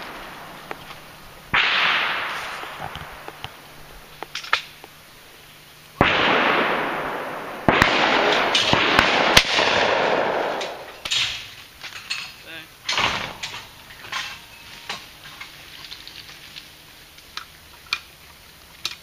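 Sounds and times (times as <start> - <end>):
rolling echo of gunshots: 1.5 - 3.2, 6.0 - 10.9
shotgun shots: 1.5 - 3.2, 6.0 - 11.4, 12.9 - 13.7.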